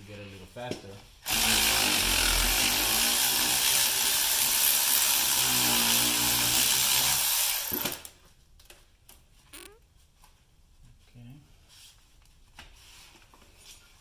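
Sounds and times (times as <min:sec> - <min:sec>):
power tool spinning out bolt: 0:05.9 - 0:08.1.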